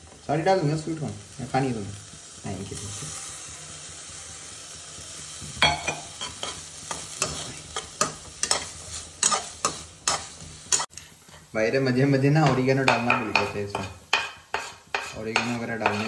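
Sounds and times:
vegetables sizzling in butter: 0.0 - 16.0
steel spoon scraping a pan: 5.6 - 11.4, 12.4 - 16.0.

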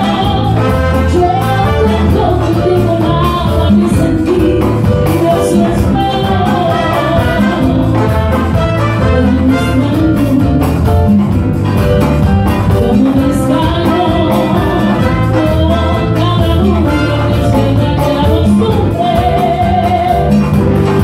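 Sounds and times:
women singing: 0.0 - 8.4, 9.0 - 10.7, 12.8 - 20.5
latin dance band playing: 0.0 - 21.0.

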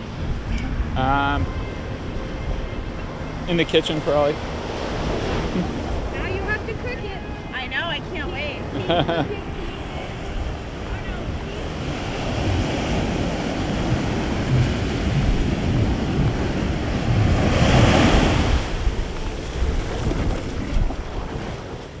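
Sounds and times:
wind buffeting microphone: 0.0 - 22.0
small waves washing up a beach: 7.8 - 22.0.

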